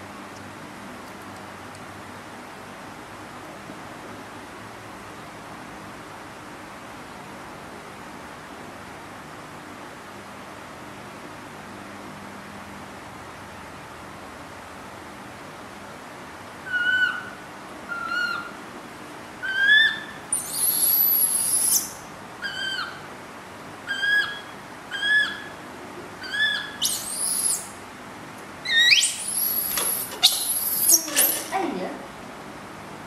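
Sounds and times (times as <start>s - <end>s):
baby monkey peeping: 16.6s - 18.6s, 19.4s - 23.1s, 23.9s - 25.6s, 26.2s - 27.8s, 28.6s - 31.5s
baby monkey shrieking: 16.6s - 18.6s, 19.4s - 23.1s, 23.9s - 25.6s, 26.2s - 27.8s, 28.6s - 31.5s.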